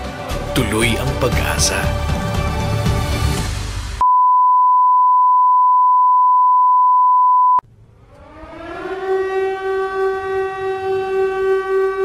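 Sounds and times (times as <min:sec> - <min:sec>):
commercial music: 0:00.0 - 0:04.0
high-pitched beep tone: 0:04.0 - 0:07.6.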